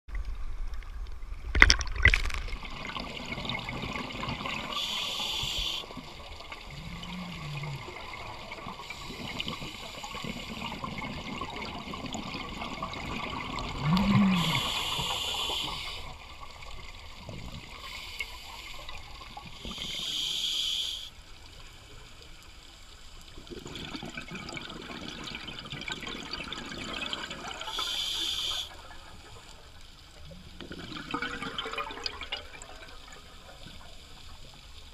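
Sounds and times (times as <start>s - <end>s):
underwater hiss: 4.4s - 11.0s, 12.8s - 16.4s, 17.5s - 21.2s, 27.4s - 28.8s
diver regulator bubble bursts: 6.6s - 16.0s.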